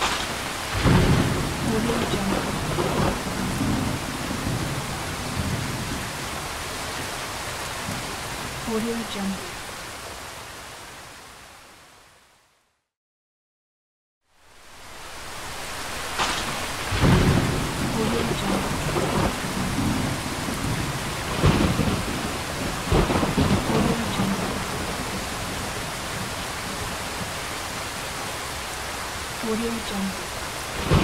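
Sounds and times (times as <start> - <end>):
thunder rumbling: 0.0 - 7.1, 15.2 - 27.4, 29.4 - 31.0
light rain falling: 0.0 - 12.8, 14.2 - 31.0.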